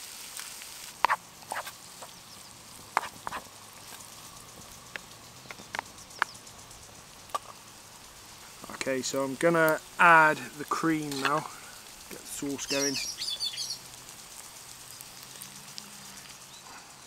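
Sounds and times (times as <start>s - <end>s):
food sizzling in a pan: 0.0s - 17.0s
sharp pops and clicks: 1.0s - 2.2s, 2.9s - 6.4s, 7.2s - 7.6s.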